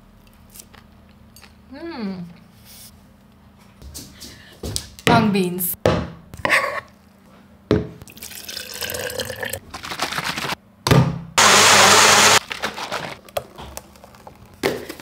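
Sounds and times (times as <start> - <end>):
water pouring into blender jar: 8.0 - 9.6
blender running: 11.4 - 13.1.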